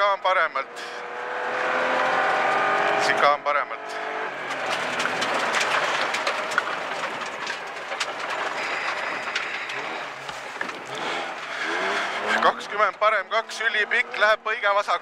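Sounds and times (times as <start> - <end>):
car engine: 0.0 - 15.0
tyre and gravel rush: 4.4 - 12.7
stones pinging against underbody: 4.5 - 10.9.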